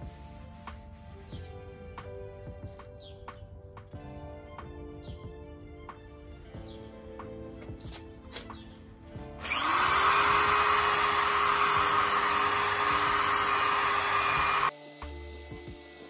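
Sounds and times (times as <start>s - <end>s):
electric drill spinning: 9.4s - 16.0s.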